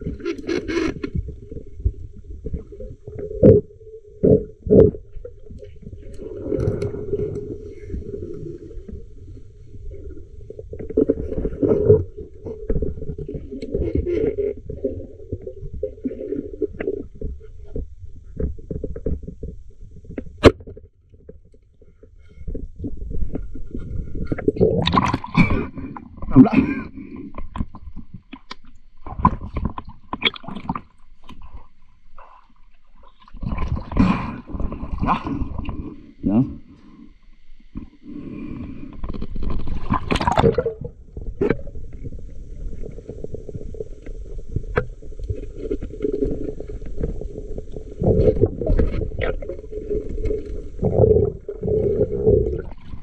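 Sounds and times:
muffled underwater water movement: 0:00.0 - 0:53.0
underwater clicks and knocks: 0:16.7 - 0:26.4, 0:27.3 - 0:31.5.

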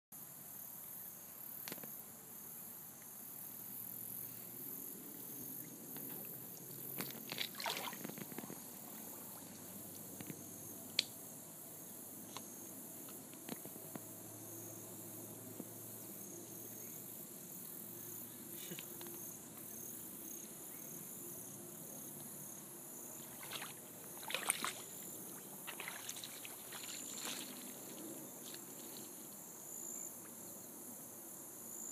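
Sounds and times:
insects chirping: 0:00.2 - 0:31.9
shallow water sloshing: 0:06.9 - 0:09.7, 0:23.2 - 0:28.2.

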